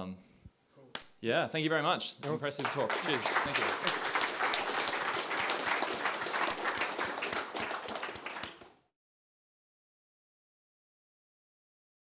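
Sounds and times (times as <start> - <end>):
audience applauding: 2.2 - 8.9.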